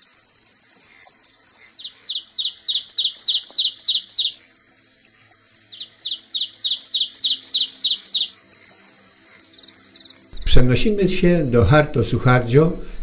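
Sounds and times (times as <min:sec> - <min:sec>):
steady high-pitched whine: 0:00.0 - 0:13.0
bird singing falling notes: 0:01.8 - 0:04.4, 0:05.7 - 0:08.4.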